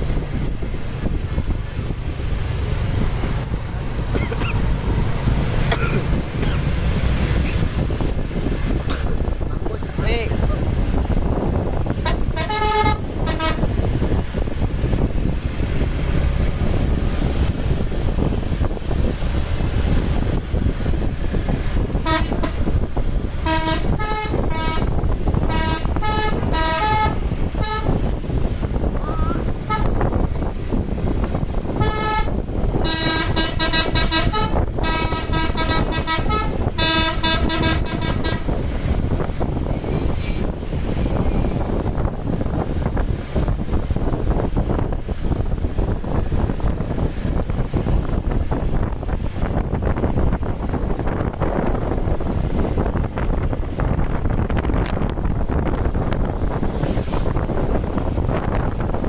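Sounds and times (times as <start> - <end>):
bus engine rumble: 0.0 - 59.0
musical bus horn: 11.9 - 13.8, 22.0 - 28.1, 29.6 - 30.1, 31.7 - 38.6.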